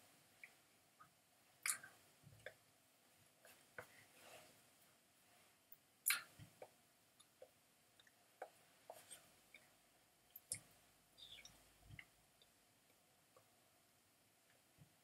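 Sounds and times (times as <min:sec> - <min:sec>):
mouth clicks: 0:01.6 - 0:02.6, 0:06.0 - 0:08.6.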